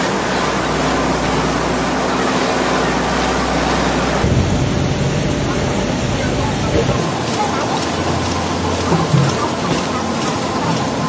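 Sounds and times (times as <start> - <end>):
food processing machine hum: 0.0 - 11.0.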